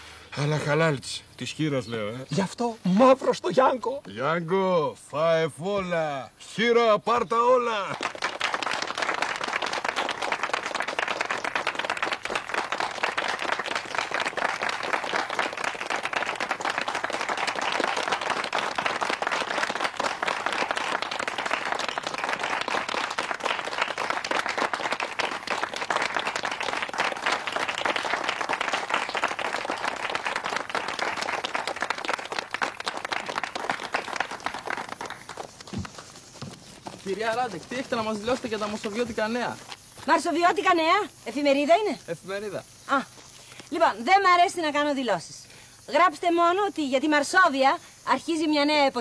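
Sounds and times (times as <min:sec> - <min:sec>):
crowd applauding: 0:07.4 - 0:39.4.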